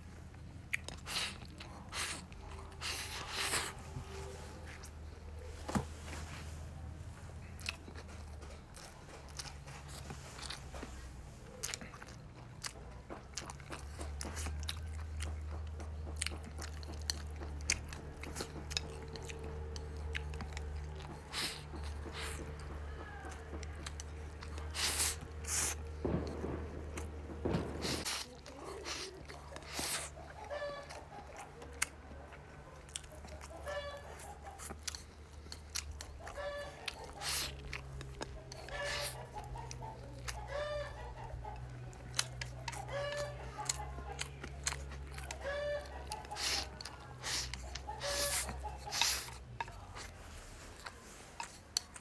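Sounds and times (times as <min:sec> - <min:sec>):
person chewing: 0:00.0 - 0:05.5, 0:07.3 - 0:52.0
chicken calling: 0:28.5 - 0:31.7, 0:32.6 - 0:34.7, 0:36.0 - 0:49.9.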